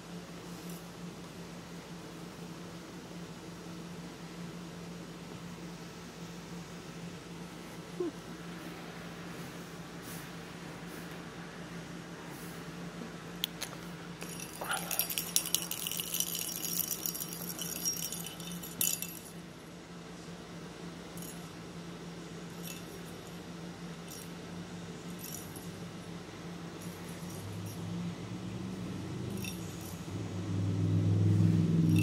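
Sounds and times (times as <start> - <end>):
low steady hum: 0.0 - 32.0
bell jingling in plastic toy ball: 14.2 - 19.4, 22.5 - 24.4, 25.1 - 25.8, 26.8 - 27.9, 29.3 - 30.2.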